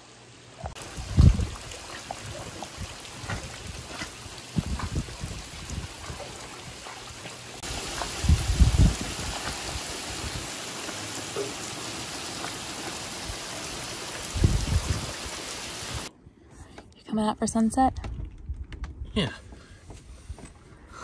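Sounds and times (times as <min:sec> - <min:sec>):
rain falling on sea: 0:00.8 - 0:16.1.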